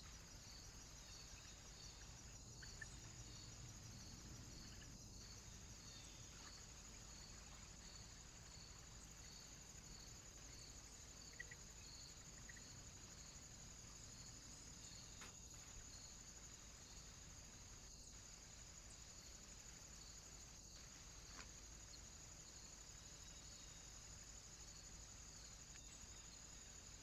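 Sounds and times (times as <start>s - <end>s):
faint high-pitched whine: 0.0s - 27.0s
faint ticks: 25.6s - 26.1s.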